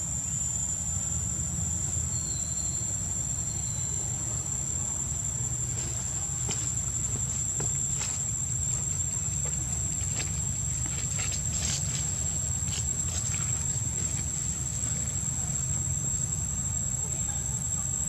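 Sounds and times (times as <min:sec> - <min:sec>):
high-pitched insect drone: 0:00.0 - 0:18.0
low steady rumble: 0:00.0 - 0:18.0
faint high chirps: 0:02.0 - 0:04.6.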